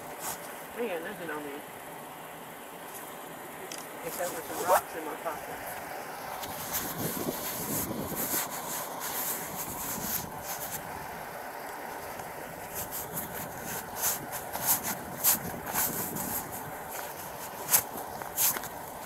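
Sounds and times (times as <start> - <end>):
short rustles: 0.0 - 0.8, 2.8 - 5.0, 6.4 - 11.0, 12.1 - 19.0
wind buffeting microphone: 4.3 - 19.0.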